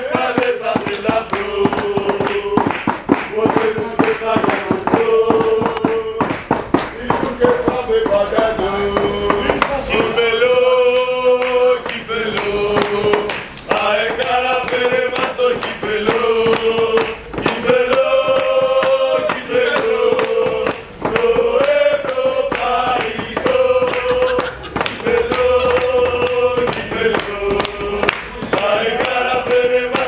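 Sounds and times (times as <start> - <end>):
hand claps: 0.0 - 30.0
men chanting in unison: 0.0 - 30.0.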